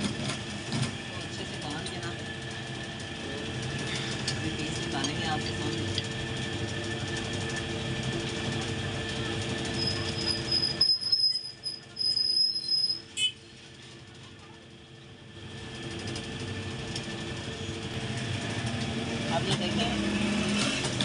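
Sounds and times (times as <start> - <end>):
high metallic squeal: 9.7 - 13.4.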